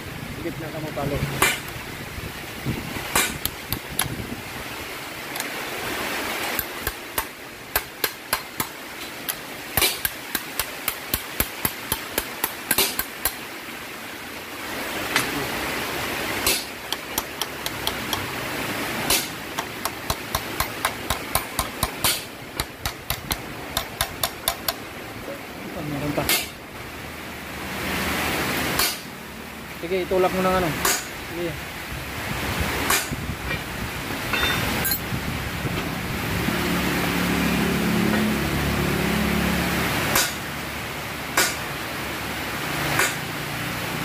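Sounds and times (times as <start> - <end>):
hammer tapping on metal pipe: 9.3 - 13.4, 16.5 - 18.3, 19.1 - 24.8, 34.3 - 35.0.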